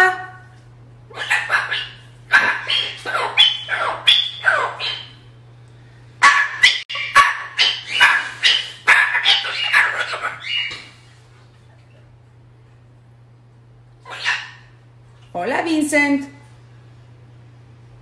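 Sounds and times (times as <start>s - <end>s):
cockatoo squawking and talking: 1.1s - 5.2s, 6.2s - 11.0s, 14.0s - 14.8s.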